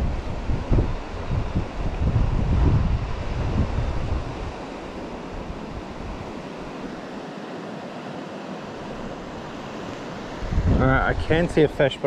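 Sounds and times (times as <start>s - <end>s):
wind buffeting on microphone: 0.0s - 7.0s, 8.9s - 11.9s
river water rushing over stones: 4.1s - 12.0s.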